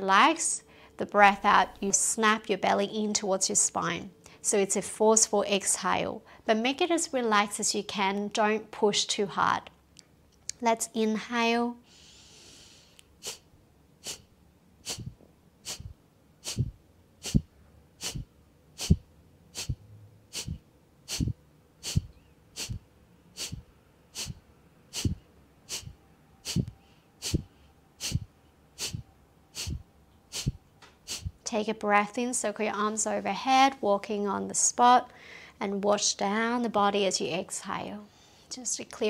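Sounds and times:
woman inhaling softly: 0:00.6 - 0:01.0, 0:11.8 - 0:13.4, 0:35.1 - 0:35.6, 0:38.1 - 0:38.5
woman exhaling forcefully: 0:14.0 - 0:22.8, 0:23.4 - 0:29.0, 0:29.6 - 0:31.4.

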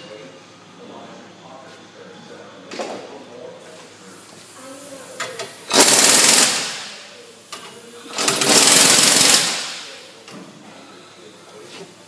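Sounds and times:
impact wrench hammering: 0:05.7 - 0:07.0, 0:08.2 - 0:09.9.

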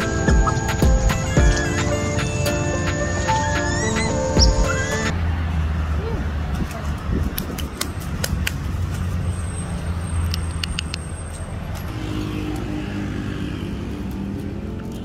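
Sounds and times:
sharp clicks: 0:10.2 - 0:11.9.

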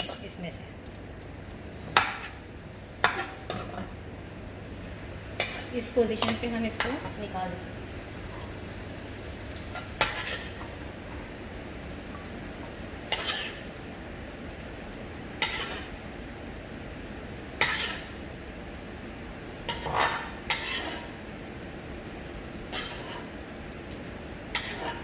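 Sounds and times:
low steady sizzle: 0:00.0 - 0:25.0
ladle scraping a wok: 0:09.8 - 0:10.6, 0:13.1 - 0:13.7, 0:15.4 - 0:16.0, 0:17.6 - 0:18.2, 0:19.7 - 0:21.2, 0:22.7 - 0:23.4.

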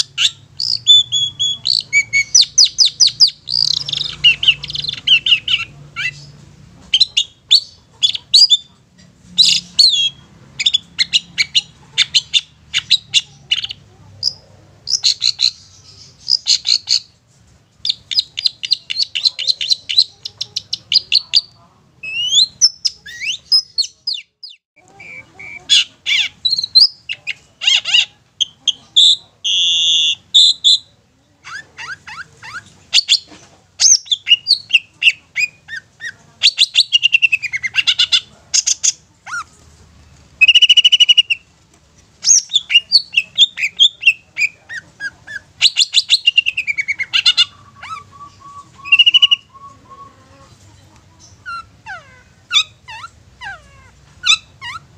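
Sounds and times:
bird singing chattering trills: 0:00.0 - 0:08.7, 0:42.2 - 0:50.5.

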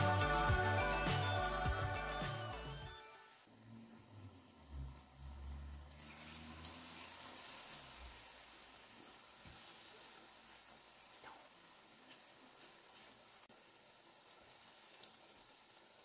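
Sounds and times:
batter sizzling in hot oil: 0:04.3 - 0:16.0
oil crackles and pops: 0:04.8 - 0:08.3, 0:08.9 - 0:16.0.

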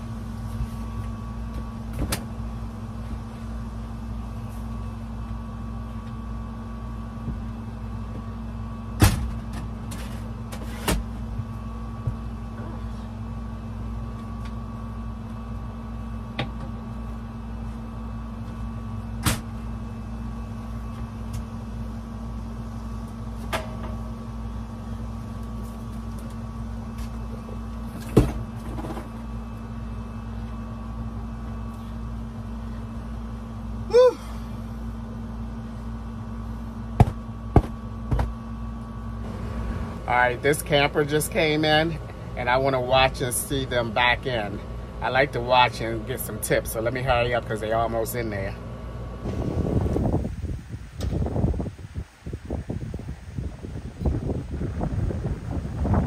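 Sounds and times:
air conditioner humming: 0:00.0 - 0:56.0.

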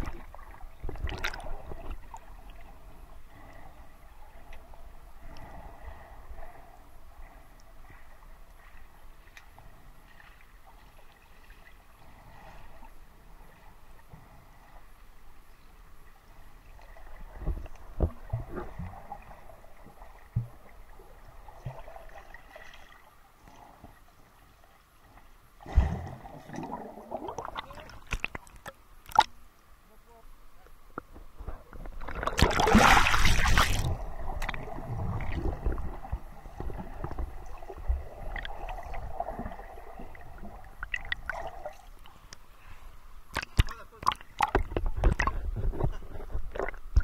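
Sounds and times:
faint underwater water hiss: 0:00.0 - 0:47.0
gurgling bubbles: 0:25.7 - 0:28.4, 0:32.0 - 0:41.8.

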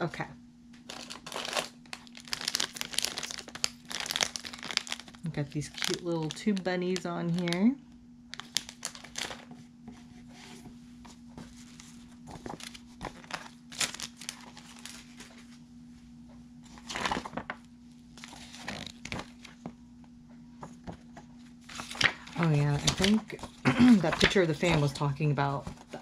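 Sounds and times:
plastic wrappers crinkling: 0:00.8 - 0:09.5, 0:11.5 - 0:15.6, 0:16.7 - 0:19.6, 0:21.6 - 0:26.0
paper pages rustling: 0:08.3 - 0:15.6, 0:16.6 - 0:19.7, 0:20.6 - 0:26.0.

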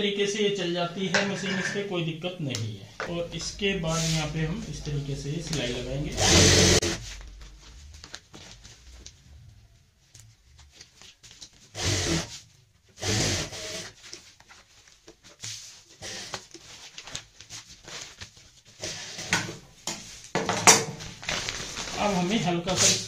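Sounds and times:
cloth and plastic rustling: 0:07.0 - 0:13.0, 0:13.9 - 0:19.0, 0:19.8 - 0:23.0.

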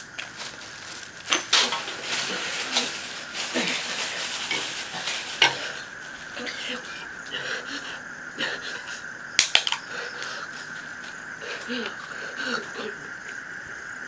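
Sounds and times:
plastic bag rustling: 0:00.0 - 0:07.0.

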